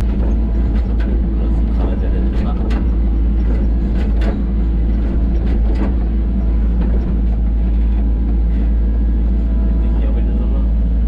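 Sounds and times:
diesel engine running: 0.0 - 11.0.

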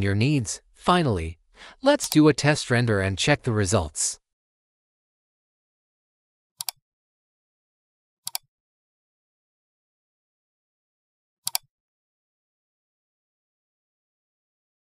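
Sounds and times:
computer mouse clicks: 6.6 - 6.8, 11.5 - 11.7.

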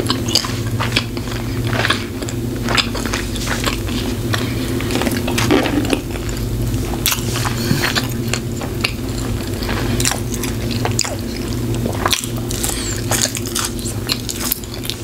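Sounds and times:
chewing with wet mouth smacks: 0.0 - 15.0
steady low hum: 0.0 - 15.0.

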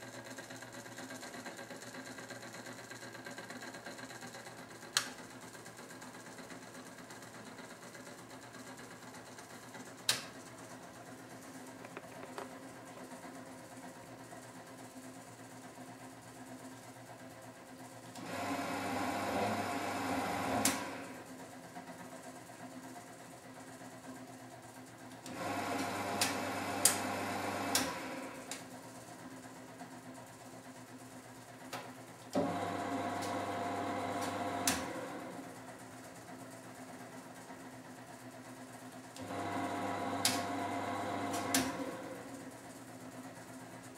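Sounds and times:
washing machine hum: 0.0 - 43.9
washing machine drum motor humming: 31.5 - 37.6.

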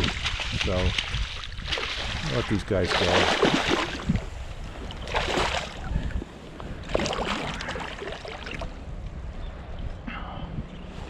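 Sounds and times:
rush of moving water: 0.0 - 8.8
water splashing and sloshing: 0.0 - 9.0.

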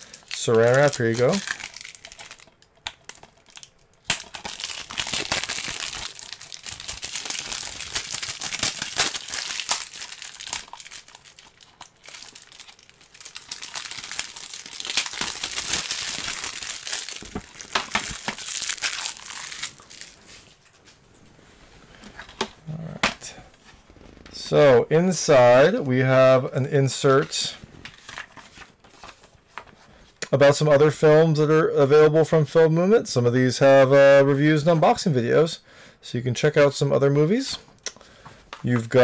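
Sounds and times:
plastic wrap crinkling: 0.0 - 21.1.

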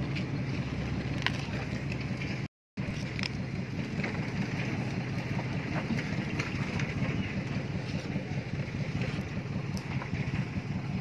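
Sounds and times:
vehicle engine rumble: 0.0 - 11.0.

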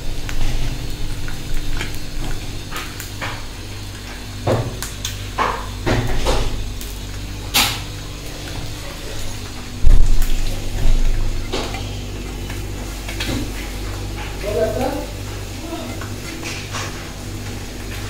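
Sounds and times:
steady low hum: 0.0 - 18.0
utensils and cookware clinking: 7.5 - 18.0.

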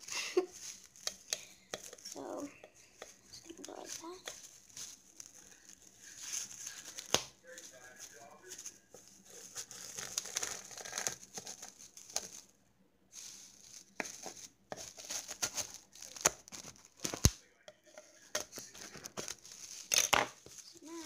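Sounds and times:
plastic sheeting cut and torn: 9.4 - 12.4, 13.8 - 17.4, 18.5 - 21.0.

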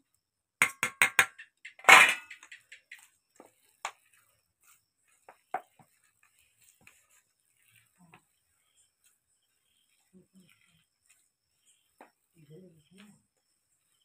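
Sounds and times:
steel bowls clattering: 0.6 - 3.0
hand mixing thick batter: 2.7 - 14.0.

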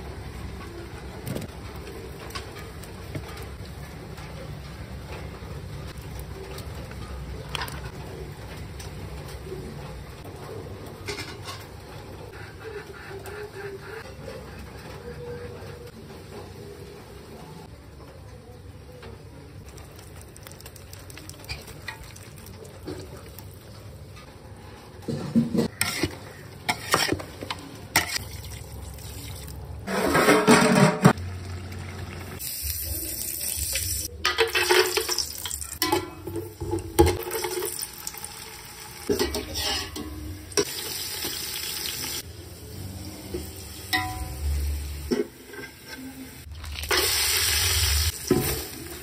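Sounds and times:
spoon knocking and scraping pot: 25.0 - 28.2, 39.1 - 40.7
food sizzling in hot oil: 31.2 - 35.9, 37.2 - 49.0.

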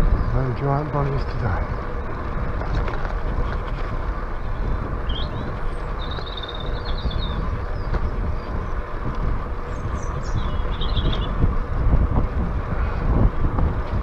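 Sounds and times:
bicycle tyres on tarmac: 0.0 - 14.0
wind buffeting microphone: 0.0 - 14.0
bird chirp and trill: 4.3 - 11.4.

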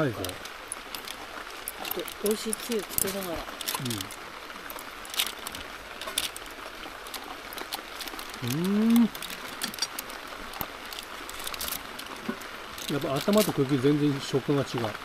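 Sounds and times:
river rushing: 0.0 - 15.0
person humming mmm: 8.4 - 9.2.

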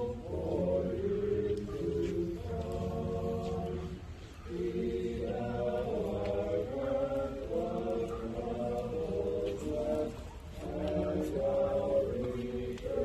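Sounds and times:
group of voices singing: 0.0 - 13.0.

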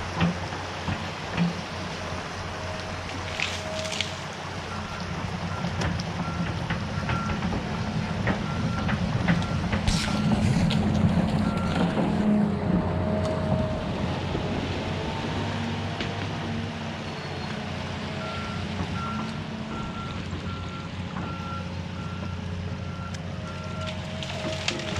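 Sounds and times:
creek water pouring: 0.0 - 6.1
excavator diesel engine under load: 0.0 - 24.9.

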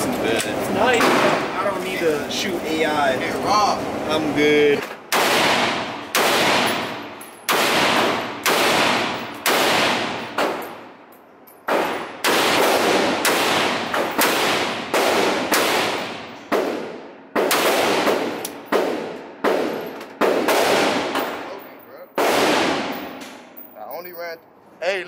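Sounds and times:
rifle shots echoing indoors: 5.1 - 10.9, 11.6 - 23.5.

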